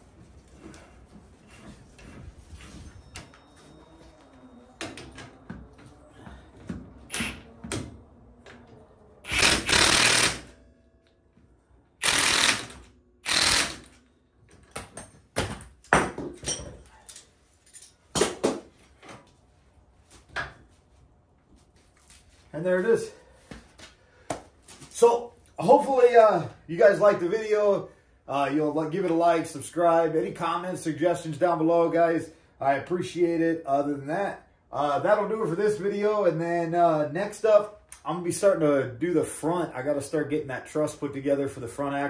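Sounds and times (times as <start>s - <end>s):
impact wrench bursts: 7.1s - 7.4s, 9.2s - 10.6s, 12.0s - 14.0s
metal tools clinking: 16.4s - 18.1s.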